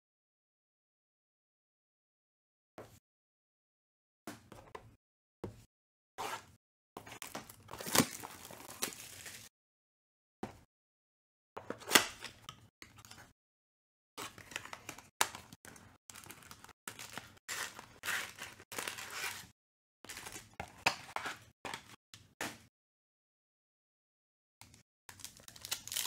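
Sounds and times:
foil wrappers tearing and crinkling: 7.8s - 9.5s, 16.2s - 19.5s, 25.1s - 26.0s.

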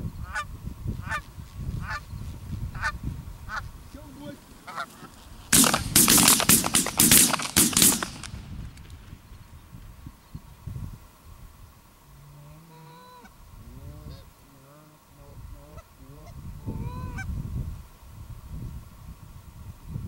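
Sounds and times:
wind rumble on microphone: 0.0s - 4.5s, 7.8s - 12.4s, 13.2s - 14.3s, 15.2s - 20.0s
geese honking: 2.8s - 7.4s, 12.6s - 13.4s, 15.6s - 17.3s.

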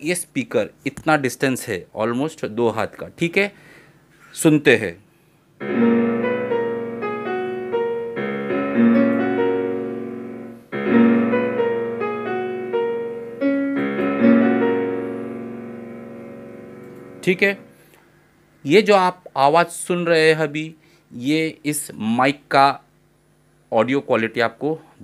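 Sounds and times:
digital piano melody and chords: 5.6s - 17.8s.

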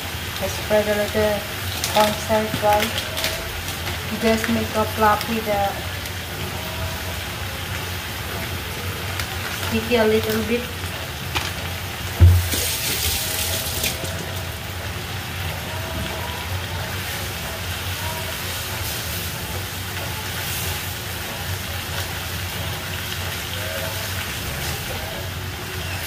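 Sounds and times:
vegetables simmering in pan: 0.0s - 26.0s
thump: 12.2s - 12.7s.

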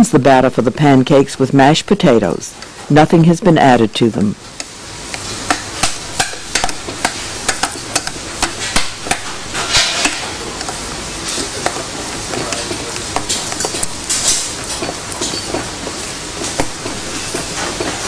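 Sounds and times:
wooden spatula stirring mashed potatoes: 4.6s - 18.0s
spatula knocking against metal bowl: 5.4s - 10.8s.

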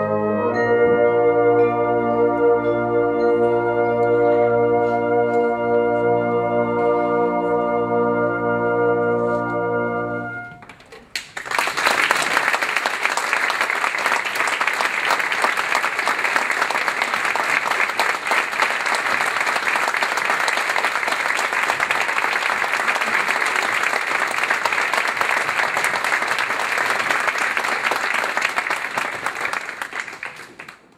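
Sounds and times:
brass band chord: 0.0s - 10.6s
audience applause: 11.1s - 30.9s.

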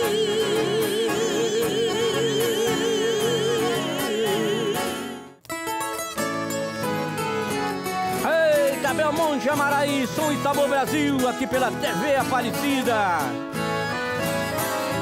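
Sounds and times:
vocal duo singing in harmony: 0.0s - 5.1s
acoustic guitar: 0.0s - 15.0s
plucked guitar music: 0.0s - 15.0s.

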